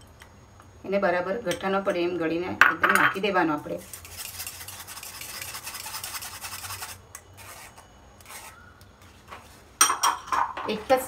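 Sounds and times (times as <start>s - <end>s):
spoon scraping wire strainer: 3.8s - 8.6s.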